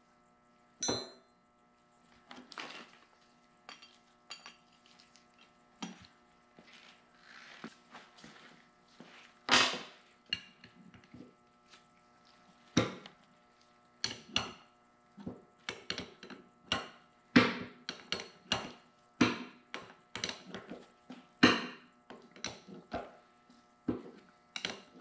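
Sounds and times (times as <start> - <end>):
faint steady hum: 0.0 - 25.0
metal fittings clinking on workbench: 3.7 - 5.0.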